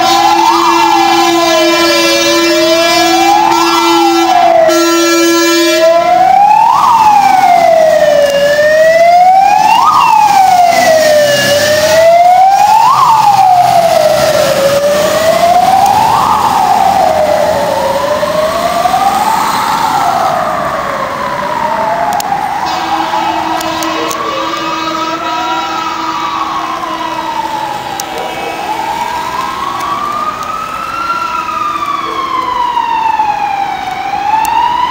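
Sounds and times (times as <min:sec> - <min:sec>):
fire engine air horns: 0:00.0 - 0:17.0, 0:22.3 - 0:30.1
electronic siren wailing: 0:00.0 - 0:34.9.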